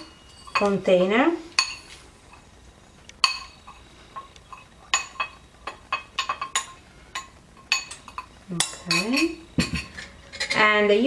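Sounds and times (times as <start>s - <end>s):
metal spoon clinking against glass: 0.0s - 0.8s, 1.6s - 2.0s, 3.2s - 10.7s.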